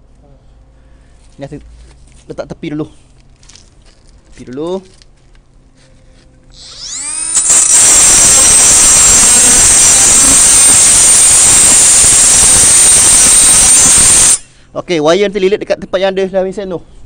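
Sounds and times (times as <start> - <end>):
angle grinder grinding metal: 6.6 - 14.5.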